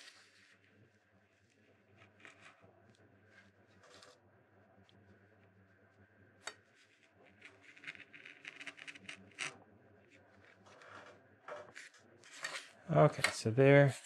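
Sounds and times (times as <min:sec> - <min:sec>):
knife scratching wood: 0:07.4 - 0:09.6.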